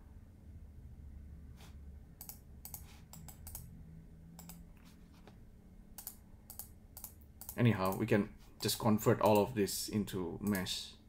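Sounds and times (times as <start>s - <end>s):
low room hum: 0.0s - 11.0s
keyboard and mouse clicks: 2.2s - 3.7s, 4.4s - 4.6s, 6.0s - 8.0s, 10.4s - 10.7s.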